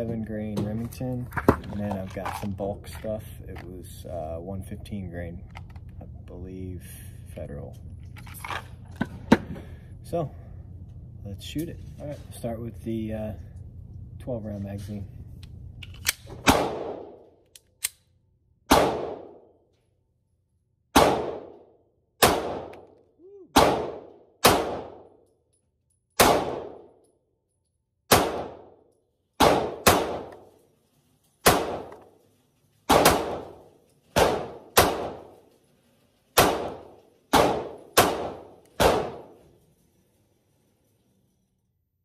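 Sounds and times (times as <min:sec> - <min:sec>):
pistol shots: 0:16.2 - 0:17.2, 0:18.7 - 0:19.4, 0:20.9 - 0:21.6, 0:22.2 - 0:22.9, 0:23.6 - 0:25.0, 0:26.2 - 0:26.8, 0:28.1 - 0:28.7, 0:29.4 - 0:30.5, 0:31.4 - 0:32.0, 0:32.9 - 0:33.6, 0:34.2 - 0:35.3, 0:36.4 - 0:39.4.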